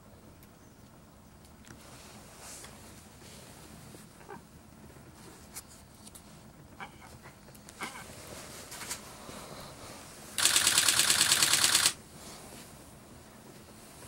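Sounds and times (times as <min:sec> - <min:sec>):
camera shutter burst: 0:10.4 - 0:12.0.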